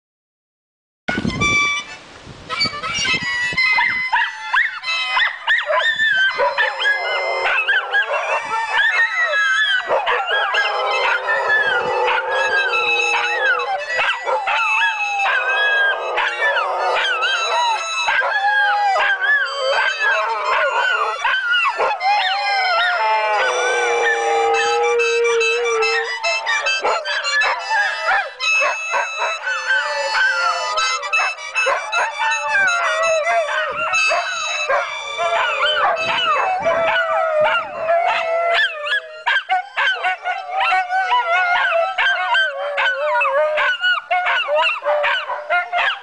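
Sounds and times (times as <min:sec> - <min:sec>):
held notes on mouth-blown instrument: 0:01.1 - 0:05.2, 0:06.2 - 0:38.3
small dog yipping and howling: 0:03.6 - 0:46.0
dog howling: 0:04.6 - 0:46.0.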